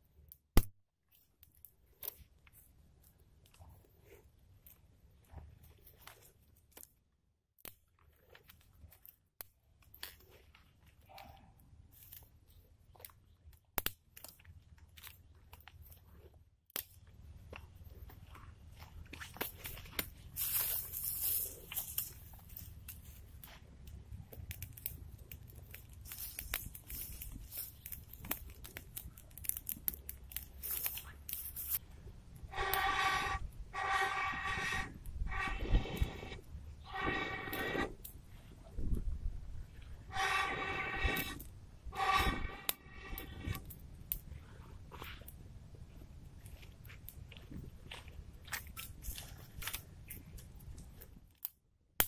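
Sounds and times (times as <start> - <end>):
campfire crackling: 11.9 - 38.8, 39.4 - 51.1
blowing through blow tube: 32.4 - 38.1, 40.0 - 43.7.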